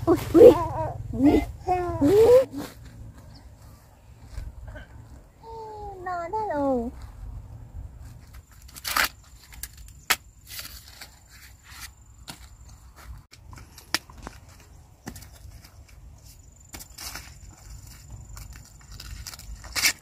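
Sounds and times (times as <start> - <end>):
corn husks tearing and rustling: 8.1 - 12.0, 16.8 - 20.0.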